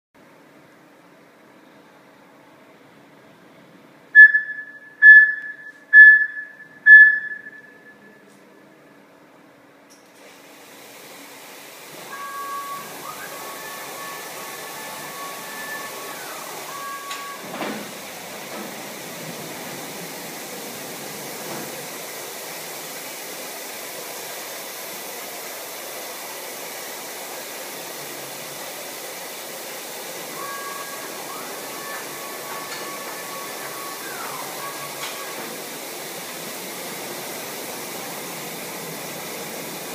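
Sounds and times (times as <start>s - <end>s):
pumps and water spray hiss: 10.1s - 39.9s
falling whine: 12.1s - 17.8s, 30.1s - 39.0s
steady whining tones: 12.1s - 17.8s, 30.2s - 37.6s.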